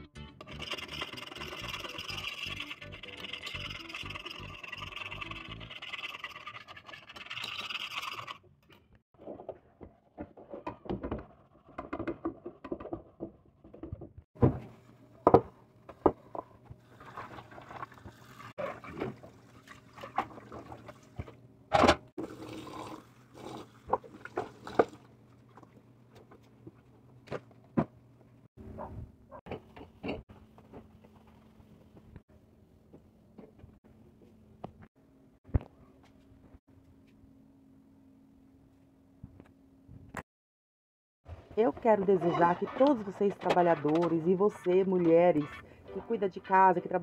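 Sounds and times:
background music: 0:00.0 - 0:00.8, 0:43.0 - 0:47.0.

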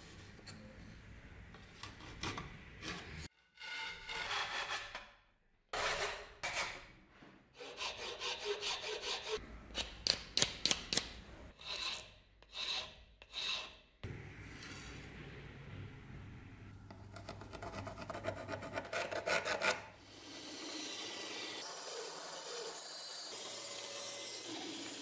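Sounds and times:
metal file scraping wood: 0:01.8 - 0:05.2, 0:07.5 - 0:13.9, 0:16.9 - 0:19.9
hand saw cutting wood: 0:07.6 - 0:13.8, 0:17.6 - 0:25.0.

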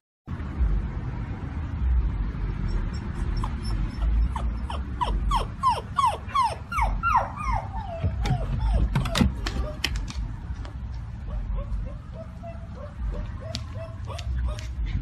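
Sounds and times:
puppy whining: 0:02.7 - 0:10.0, 0:11.2 - 0:15.0.

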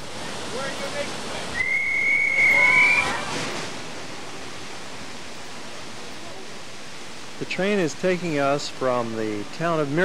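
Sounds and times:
waterfall roaring: 0:00.0 - 0:10.0
high whistle: 0:01.5 - 0:03.3.

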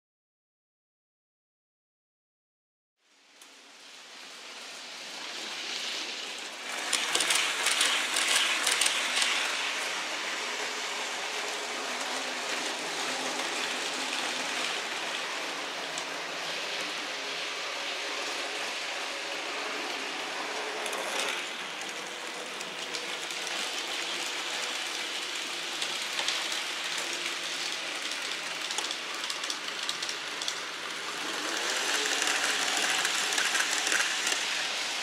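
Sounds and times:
model train wheels hissing on rails: 0:03.2 - 0:35.0.

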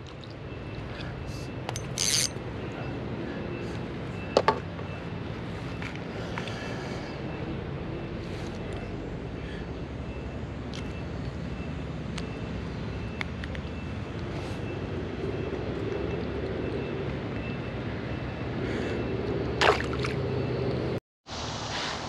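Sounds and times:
fish splashing into water: 0:19.6 - 0:20.3.

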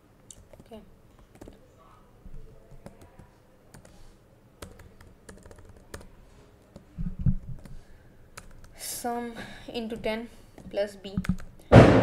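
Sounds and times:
computer keyboard typing: 0:00.3 - 0:01.6, 0:02.6 - 0:04.0, 0:04.6 - 0:07.8, 0:08.4 - 0:08.8, 0:09.9 - 0:11.5.

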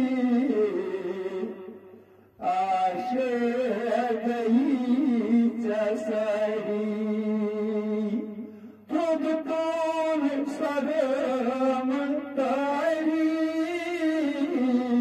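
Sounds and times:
man singing devotional song: 0:00.0 - 0:15.0.

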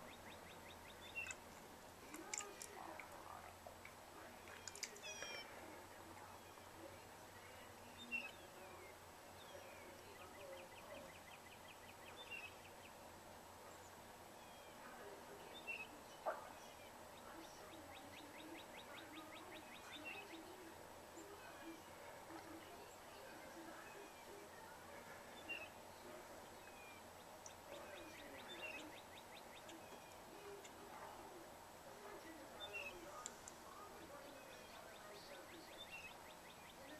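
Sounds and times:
distant songbird calls: 0:00.0 - 0:31.4, 0:32.0 - 0:36.9
dry bird trills: 0:03.8 - 0:05.6.

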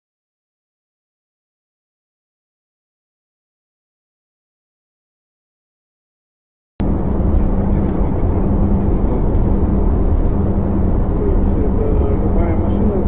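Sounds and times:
car engine and tyre rumble: 0:06.8 - 0:13.0
low hum: 0:06.8 - 0:13.0.

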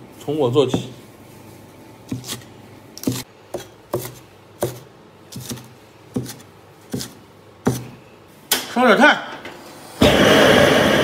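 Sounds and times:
cleaver chopping on plastic board: 0:03.0 - 0:07.9.

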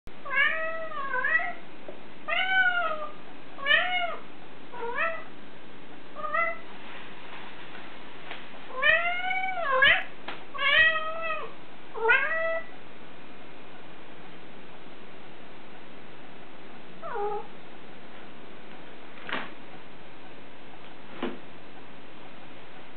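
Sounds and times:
cat meowing: 0:00.2 - 0:01.6, 0:02.3 - 0:05.3, 0:06.2 - 0:06.7, 0:08.7 - 0:12.7, 0:17.0 - 0:17.5.

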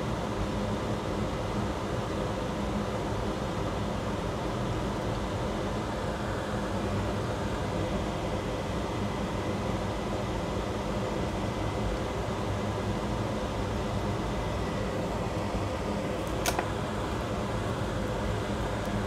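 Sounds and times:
mechanical hum and hiss: 0:00.0 - 0:19.0
short click: 0:16.3 - 0:16.7.

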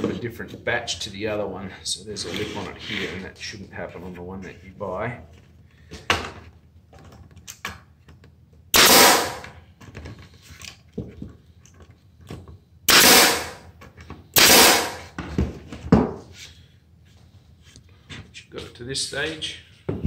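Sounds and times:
pneumatic stapler shots: 0:08.8 - 0:09.6, 0:12.9 - 0:13.7, 0:14.4 - 0:15.2.

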